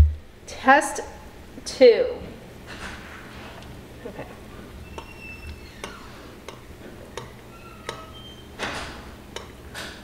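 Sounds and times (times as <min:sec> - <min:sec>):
metal spoon tapping frying pan: 0:09.4 - 0:09.6.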